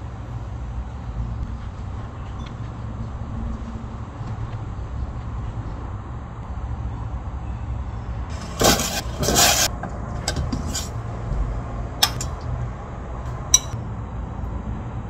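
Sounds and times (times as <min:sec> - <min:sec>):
steady low hum: 0:00.0 - 0:14.8
metal tongs clinking on a pan: 0:12.0 - 0:12.5, 0:13.6 - 0:13.8.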